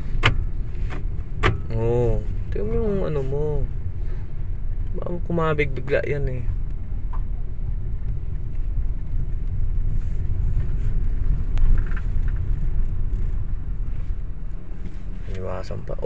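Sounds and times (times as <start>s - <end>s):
car driving rumble: 0.0s - 16.0s.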